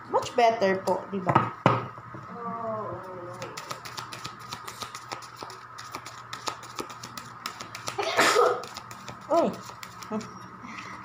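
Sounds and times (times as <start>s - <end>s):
cards being shuffled: 3.3s - 10.3s.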